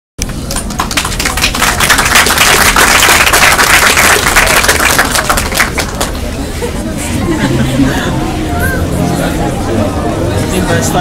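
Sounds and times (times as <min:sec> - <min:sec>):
audience applauding: 0:00.4 - 0:06.3.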